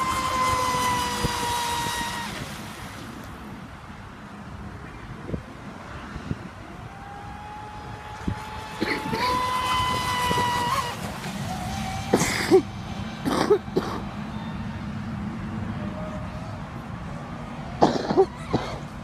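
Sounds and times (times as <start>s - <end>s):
electric motor high-pitched whine: 0.0s - 2.5s.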